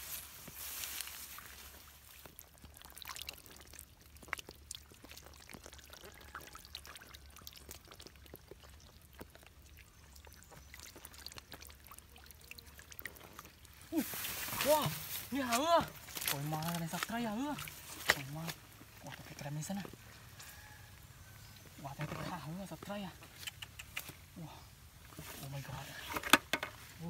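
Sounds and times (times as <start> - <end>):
water trickling: 0.5 - 23.2
fish splashing in shallow water: 0.6 - 20.9.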